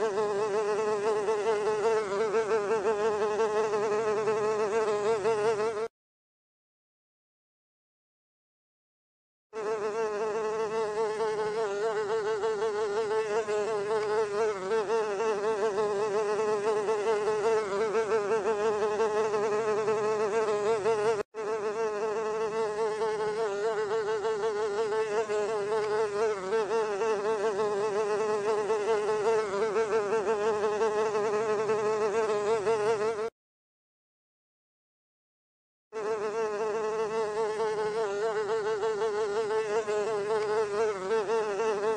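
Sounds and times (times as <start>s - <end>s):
housefly buzzing: 0.0s - 5.9s, 9.6s - 33.4s, 35.9s - 41.9s.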